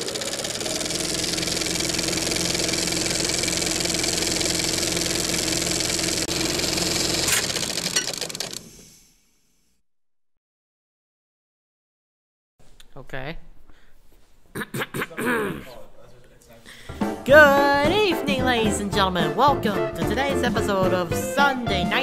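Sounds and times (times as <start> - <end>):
film projector clattering: 0.0 - 8.8.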